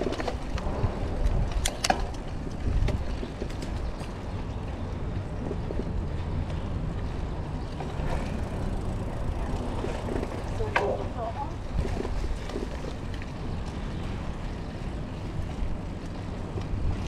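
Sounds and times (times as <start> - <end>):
bike tyre noise on dirt: 0.0 - 10.8
bike rattling: 0.0 - 17.0
wind rumble on microphone: 0.0 - 17.0.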